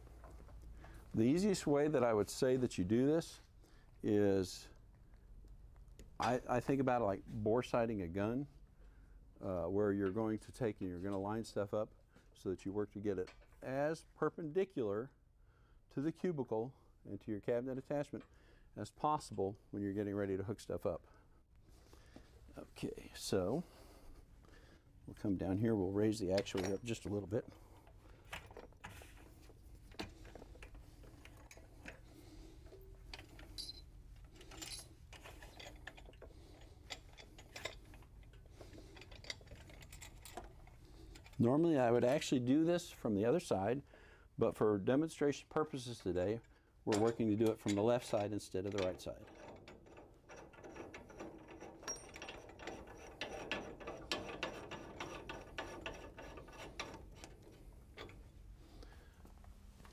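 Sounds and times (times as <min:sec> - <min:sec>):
clicks and metallic knocks: 0:26.3 - 0:27.2, 0:46.9 - 0:58.3.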